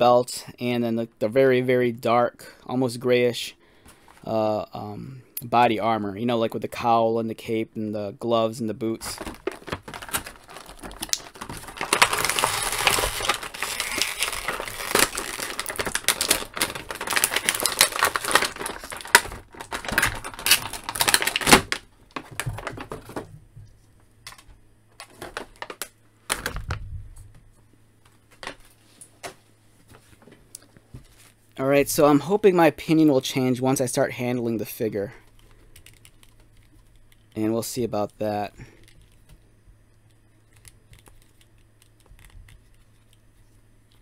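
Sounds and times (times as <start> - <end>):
plastic packaging crinkling: 8.9 - 23.3, 24.3 - 26.9, 35.3 - 39.4, 40.4 - 44.0.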